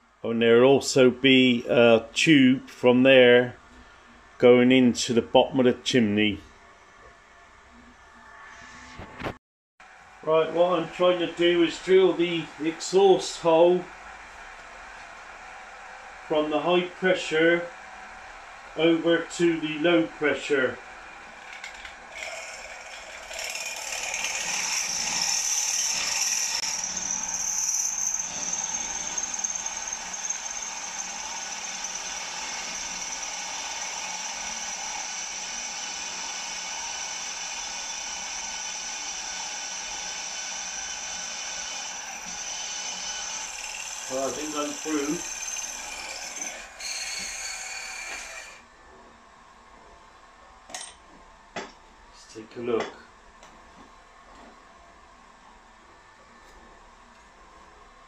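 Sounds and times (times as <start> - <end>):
drill bit whining: 21.0 - 48.6.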